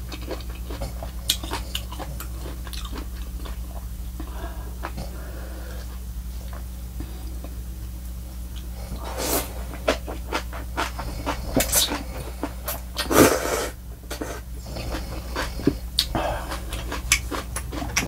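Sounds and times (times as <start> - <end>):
chewing clicks: 0.1 - 3.6, 14.6 - 18.0.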